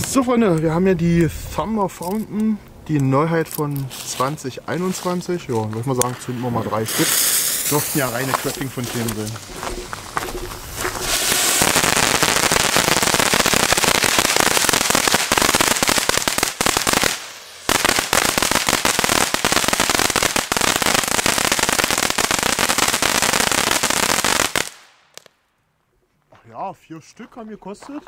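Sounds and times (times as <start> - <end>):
fireworks fountain crackling: 3.1 - 25.4.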